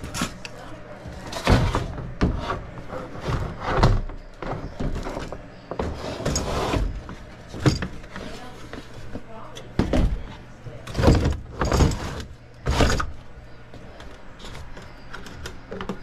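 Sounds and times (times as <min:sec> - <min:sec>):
metal coil scraping in cabinet: 0:01.1 - 0:08.7, 0:10.8 - 0:13.2.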